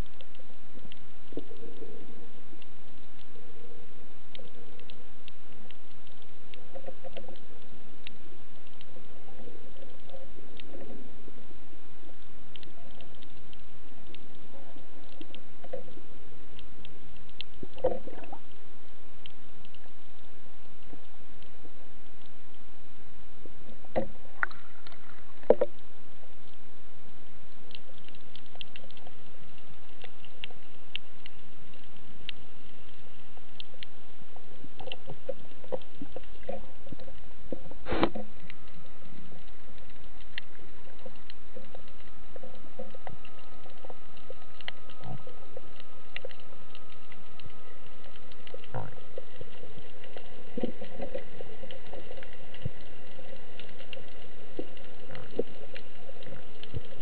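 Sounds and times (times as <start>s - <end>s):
faint clicks and crackles: 0.0s - 57.0s
faint steady tone: 0.0s - 57.0s
underwater hiss: 36.0s - 41.1s.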